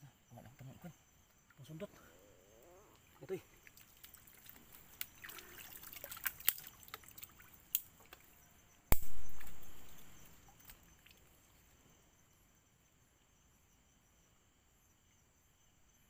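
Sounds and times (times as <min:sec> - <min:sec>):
muddy water splashing: 0:03.2 - 0:08.3
drips and clicks: 0:03.6 - 0:08.2.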